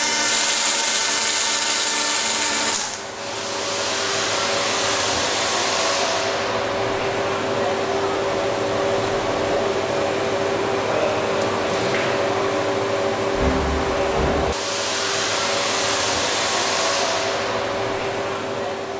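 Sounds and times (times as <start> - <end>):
machine hum and hiss: 0.0 - 18.9
steady tones: 13.0 - 14.8
low rumble: 13.3 - 14.6.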